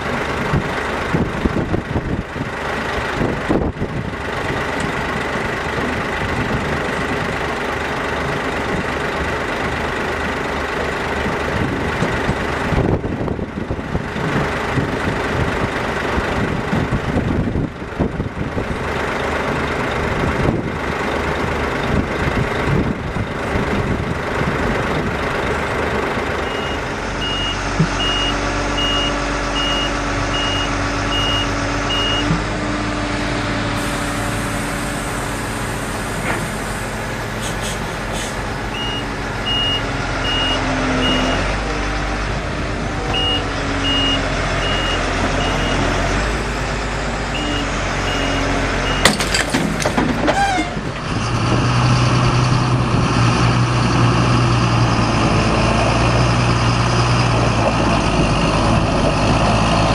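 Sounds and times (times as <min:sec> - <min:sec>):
diesel engines running: 0:00.0 - 0:59.9
reversing alarm beeps: 0:38.8 - 0:41.4, 0:43.2 - 0:45.8, 0:47.4 - 0:49.2.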